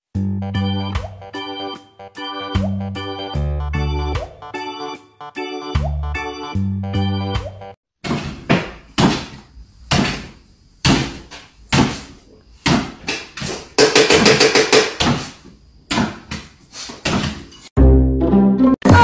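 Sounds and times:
dog landing on wooden floor: 15.9 - 17.5.

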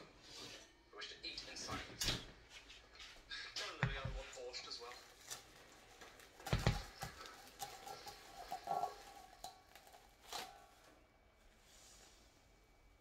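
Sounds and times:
plastic wrap rustling and crinkling: 2.8 - 11.6
hands clicking and scraping bowl: 6.4 - 10.6.

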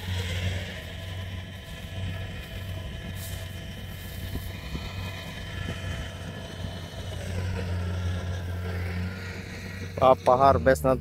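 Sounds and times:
combine harvester engine drone: 0.0 - 11.0.

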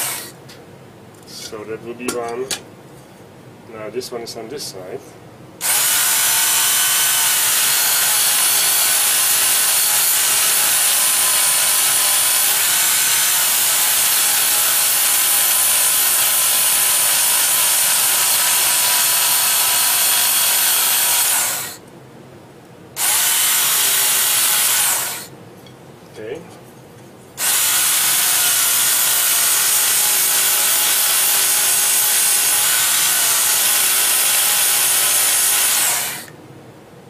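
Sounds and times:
electric grinder grinding metal: 0.0 - 0.4, 5.6 - 21.8, 23.0 - 25.3, 27.4 - 36.3.

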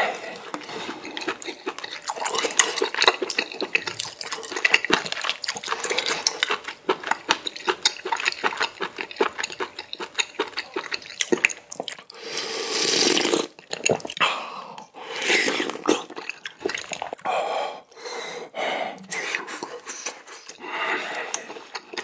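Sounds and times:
slurping noodles: 10.3 - 14.2, 14.8 - 17.2.

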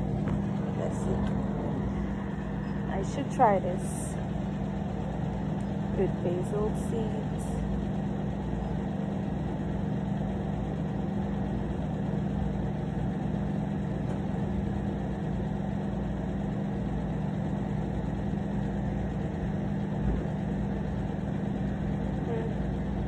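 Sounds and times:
low machine hum: 0.0 - 23.0.

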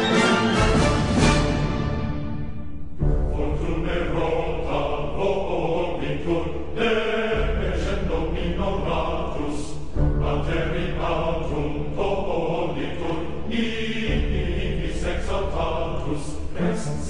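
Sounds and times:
choir-like chanting: 0.0 - 17.0
low bass drone: 3.0 - 16.2.

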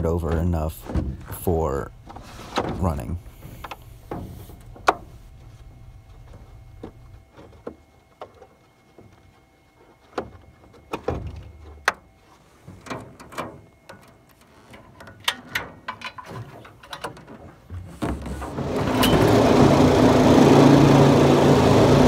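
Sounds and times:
clicks and knocks in metal boat: 0.0 - 5.1, 10.1 - 19.2.

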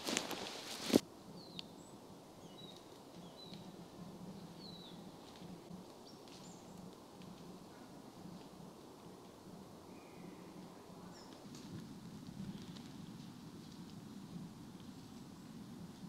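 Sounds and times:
footsteps crunching on forest floor: 0.0 - 1.0.

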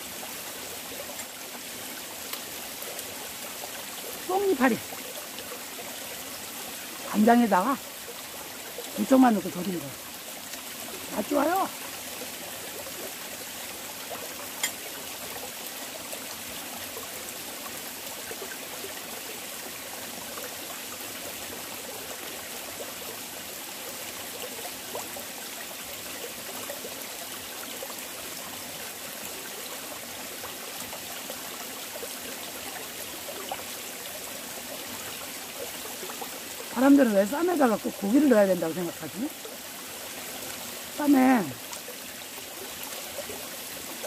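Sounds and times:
stream running over rocks: 0.0 - 44.0.

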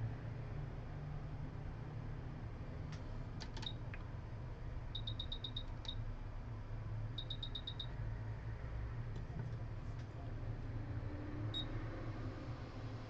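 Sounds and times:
steady low hum: 0.0 - 13.0
short high electronic beeps: 7.2 - 7.9.

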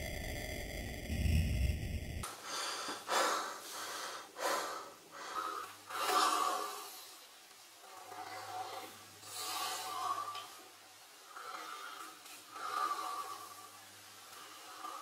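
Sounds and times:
low steady drone: 0.0 - 2.3.

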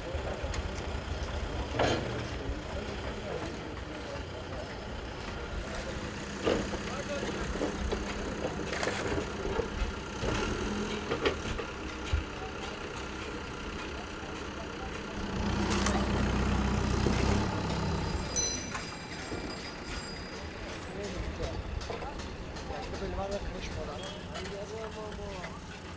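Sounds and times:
diesel engine running: 0.0 - 25.9.

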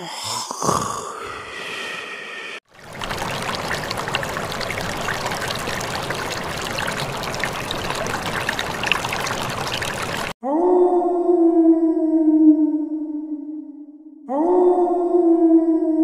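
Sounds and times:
droplet splashes: 2.7 - 10.4
water running over rocks: 2.7 - 10.4.

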